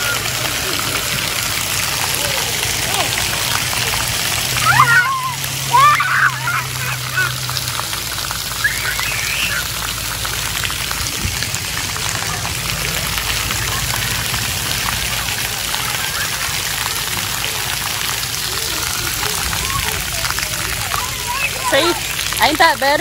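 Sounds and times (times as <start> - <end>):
water jets spraying: 0.0 - 23.0
child squealing: 4.6 - 7.4, 8.6 - 9.7.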